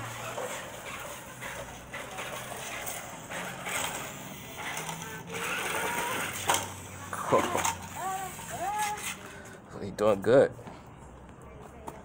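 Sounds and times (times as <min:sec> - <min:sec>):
toy electric motor and gears: 0:00.0 - 0:09.6.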